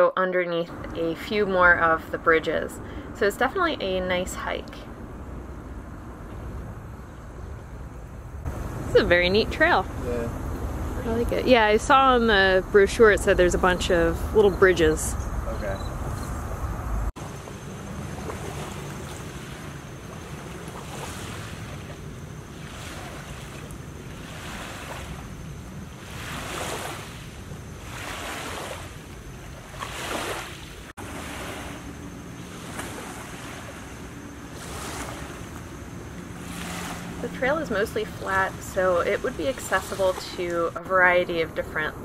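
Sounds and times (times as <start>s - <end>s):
river waves lapping bank: 0.7s - 15.8s, 17.1s - 42.0s.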